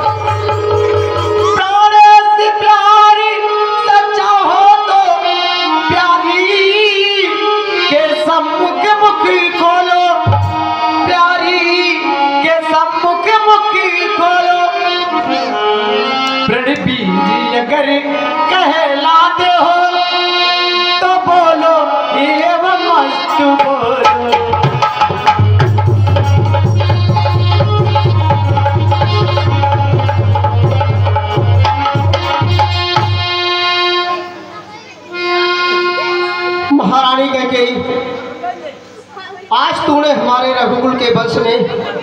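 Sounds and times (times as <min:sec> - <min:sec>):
person singing: 0:00.0 - 0:25.7
tabla strokes: 0:24.0 - 0:33.6.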